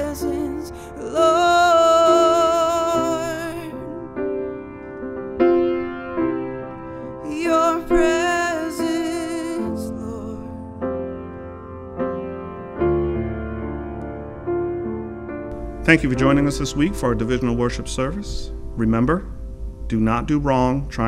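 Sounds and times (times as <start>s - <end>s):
woman singing: 0.0s - 4.2s, 7.2s - 10.7s
grand piano: 0.0s - 21.0s.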